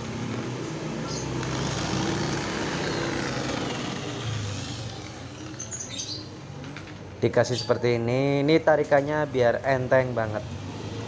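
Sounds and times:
vehicle engine running: 0:00.0 - 0:05.9.

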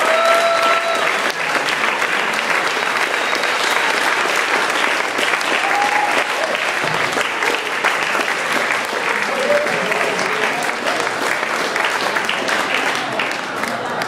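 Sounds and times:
person cheering: 0:00.0 - 0:01.2, 0:05.6 - 0:06.6, 0:09.2 - 0:10.4
crowd clapping: 0:00.0 - 0:14.0.

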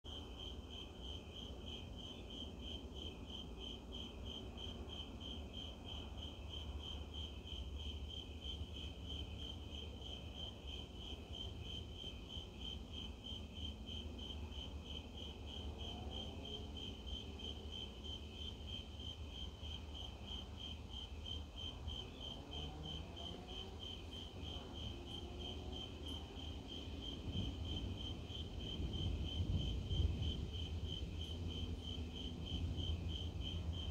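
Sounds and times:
crickets chirping: 0:00.1 - 0:33.9.

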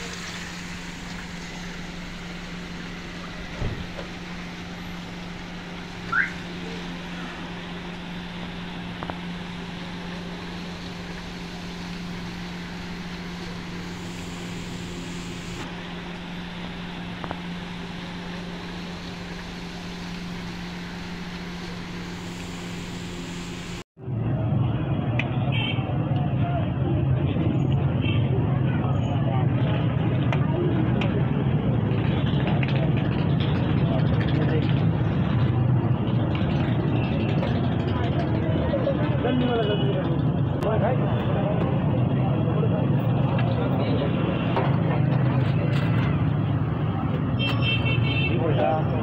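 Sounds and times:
hot oil sizzling: 0:00.0 - 0:23.8.

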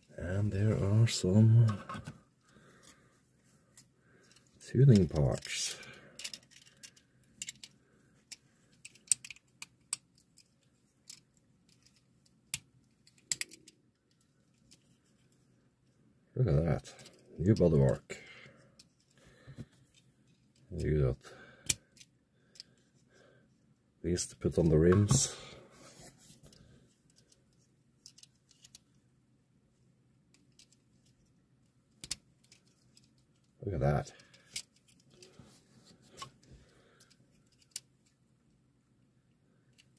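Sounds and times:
plastic parts clicking: 0:03.8 - 0:15.3, 0:28.0 - 0:28.9, 0:31.9 - 0:33.5, 0:34.2 - 0:35.4, 0:36.2 - 0:38.2.

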